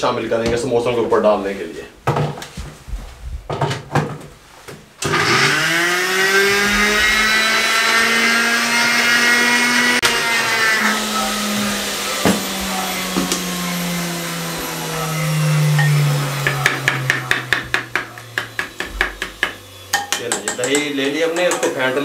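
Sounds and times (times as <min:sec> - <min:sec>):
blender motor grinding: 0:05.0 - 0:20.0.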